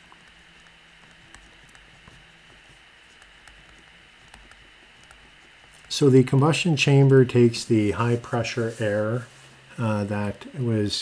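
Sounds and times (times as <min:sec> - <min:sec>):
low background hiss: 0:00.0 - 0:11.0
stylus tapping on tablet screen: 0:00.1 - 0:05.9.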